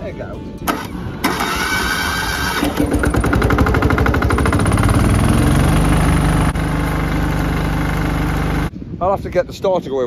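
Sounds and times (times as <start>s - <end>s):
pressure washer engine running: 1.4s - 8.7s.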